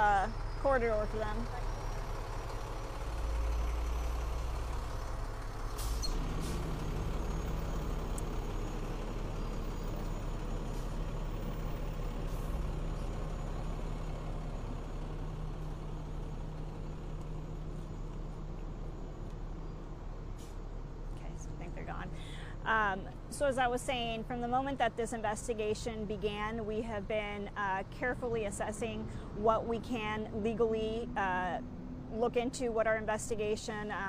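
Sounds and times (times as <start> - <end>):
diesel truck engine rumble: 0.0 - 34.0
air brakes hissing: 5.7 - 6.8.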